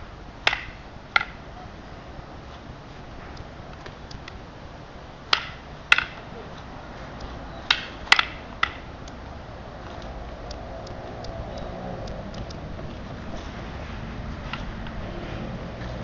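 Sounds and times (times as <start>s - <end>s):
wooden sticks clacking together: 0.4s - 1.4s, 5.3s - 6.3s, 7.2s - 9.2s.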